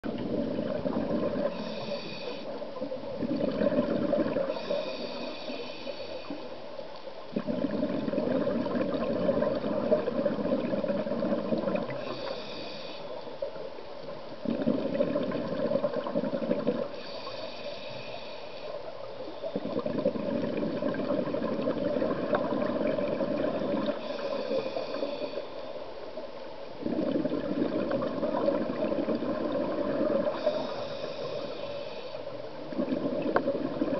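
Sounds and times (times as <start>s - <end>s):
bubbling exhale: 0.1s - 6.5s, 7.3s - 13.5s, 14.4s - 25.7s, 26.8s - 33.9s
regulator inhale hiss: 1.3s - 3.0s, 4.3s - 7.2s, 11.7s - 13.7s, 16.8s - 19.8s, 23.5s - 26.1s, 30.0s - 32.7s.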